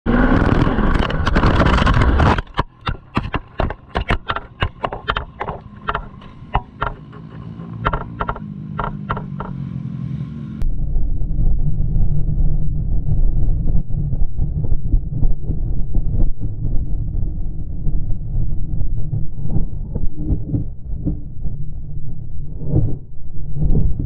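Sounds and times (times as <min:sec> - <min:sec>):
motorcycle tumbling knocks and clacks: 0:00.1 - 0:09.6
low steady hum: 0:00.1 - 0:24.0
motorcycle engine and wind: 0:00.1 - 0:24.0
scattered clicks: 0:00.2 - 0:09.6.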